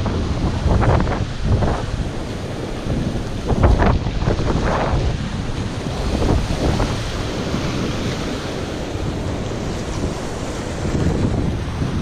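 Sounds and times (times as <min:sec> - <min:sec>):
surf washing against rocks: 0:00.0 - 0:12.0
wind buffeting microphone: 0:00.0 - 0:12.0.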